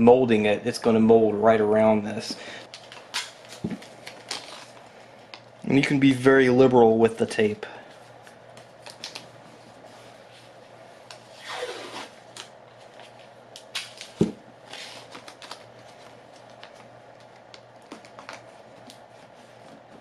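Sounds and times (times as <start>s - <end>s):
faint steady hum: 0.0s - 20.0s
tape clicks and rustles: 2.7s - 5.6s, 8.2s - 9.3s, 12.3s - 20.0s.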